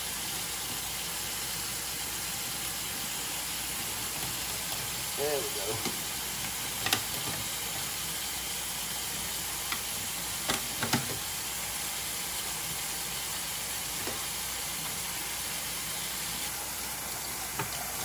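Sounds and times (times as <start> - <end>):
faucet running into steel sink: 5.8 - 18.0.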